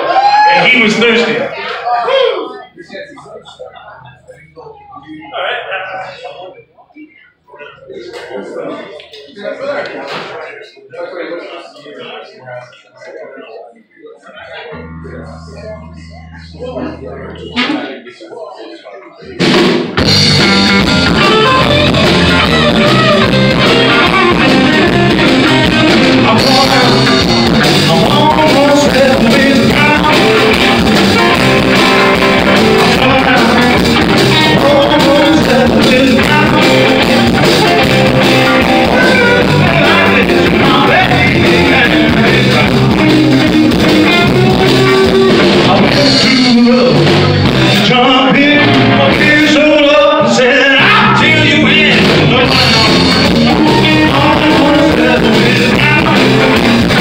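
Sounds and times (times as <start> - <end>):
blues-rock band playing: 14.7 - 17.9, 19.4 - 57.0
electric guitars: 14.7 - 18.0, 19.4 - 57.0
drums: 19.2 - 57.0.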